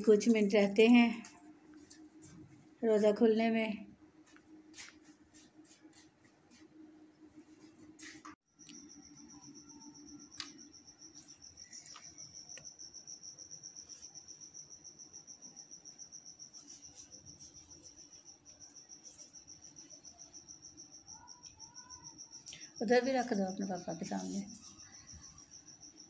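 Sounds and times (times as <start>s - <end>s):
cricket chirping: 8.5s - 26.0s.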